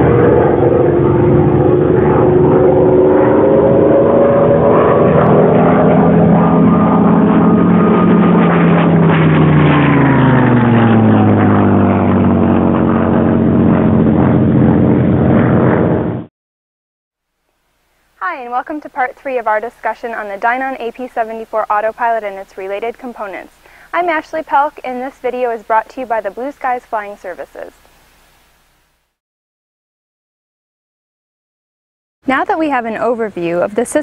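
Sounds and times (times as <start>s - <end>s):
propeller airplane flying past: 0.0s - 16.3s, 18.1s - 28.0s.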